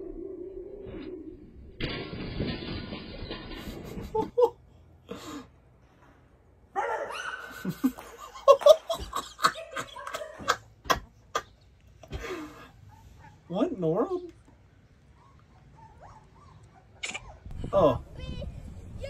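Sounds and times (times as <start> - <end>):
man laughing hard: 7.4 - 11.5.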